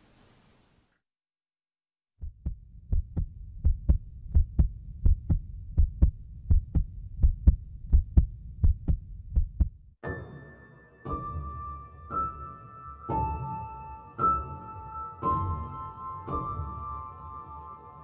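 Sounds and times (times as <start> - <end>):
heartbeat thumps: 2.2 - 9.9.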